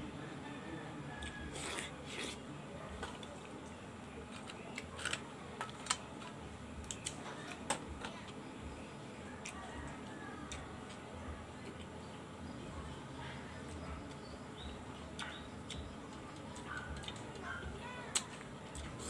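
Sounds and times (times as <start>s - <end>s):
sucking and chewing: 1.1s - 3.6s, 13.8s - 19.0s.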